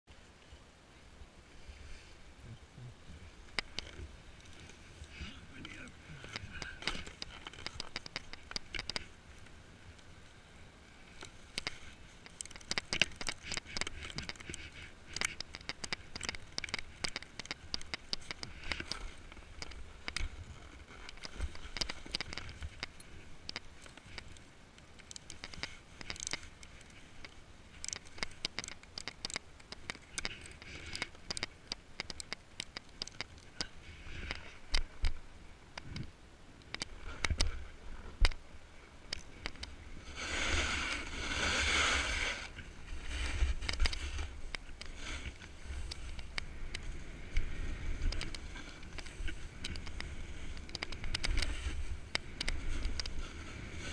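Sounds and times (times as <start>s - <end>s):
ratchet strap clicks: 25.0s - 33.5s
snowboard sliding on snow: 39.8s - 53.9s.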